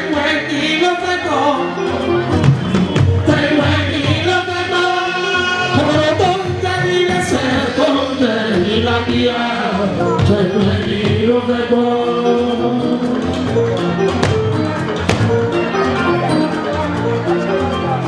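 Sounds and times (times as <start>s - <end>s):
man singing into microphone: 0.0s - 2.2s, 3.1s - 13.4s
drums and percussion: 1.6s - 4.7s, 5.7s - 11.6s, 12.8s - 18.0s.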